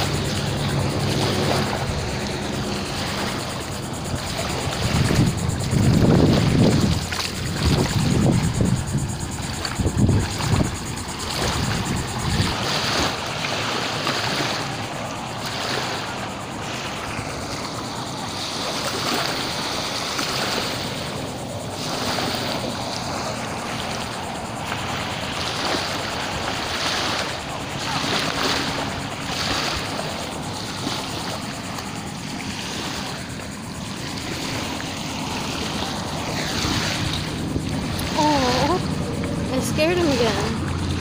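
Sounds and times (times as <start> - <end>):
small waves washing on beach: 0.0 - 41.0
wind buffeting microphone: 0.0 - 41.0.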